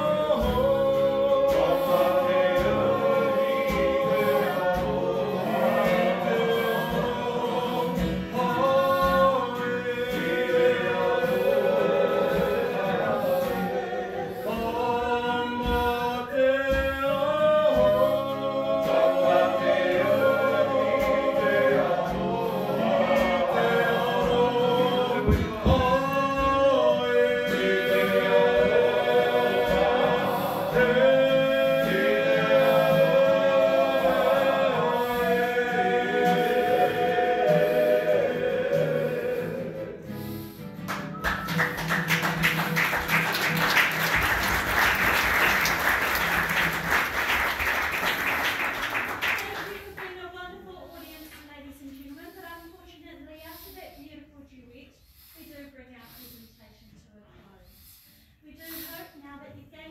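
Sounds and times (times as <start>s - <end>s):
group singing in harmony: 0.0s - 50.0s.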